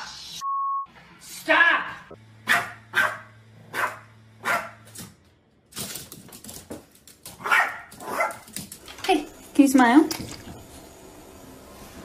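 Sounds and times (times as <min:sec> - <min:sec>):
dog barking: 0:02.4 - 0:04.8, 0:07.4 - 0:08.5.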